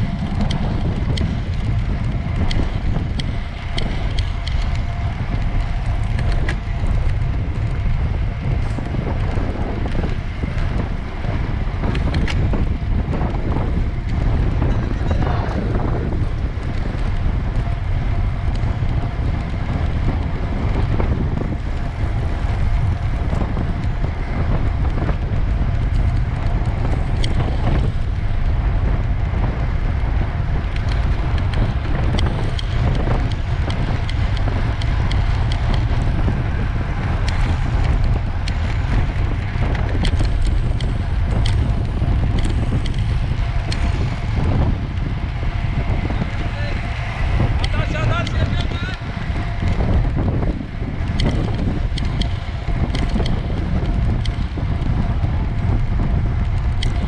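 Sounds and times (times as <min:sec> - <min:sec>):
wind buffeting microphone: 0:00.0 - 0:57.0
faint clicks: 0:30.7 - 0:36.0, 0:51.0 - 0:55.0, 0:56.4 - 0:57.0.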